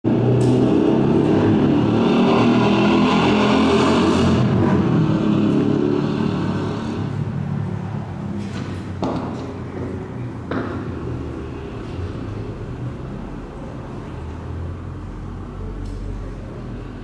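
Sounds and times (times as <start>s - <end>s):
motorcycle engine revving: 0.1s - 7.5s.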